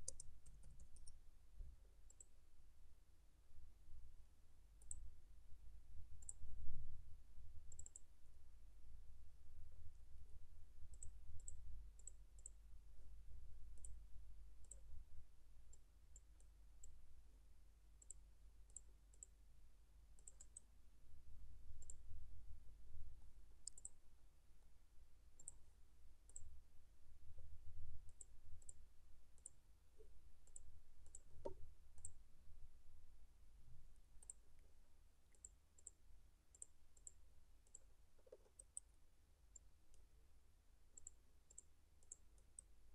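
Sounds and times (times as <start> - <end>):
computer mouse clicking: 0.0 - 1.2, 6.2 - 6.4, 7.7 - 8.0, 18.0 - 19.4, 20.2 - 20.7, 21.8 - 22.0, 23.6 - 24.0, 29.4 - 32.2, 34.2 - 34.4, 35.3 - 38.9, 41.0 - 42.7.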